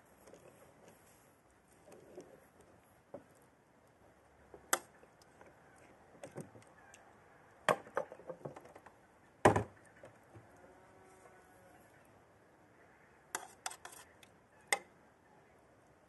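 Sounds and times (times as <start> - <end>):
metal spoon scraping pot: 13.3 - 14.2.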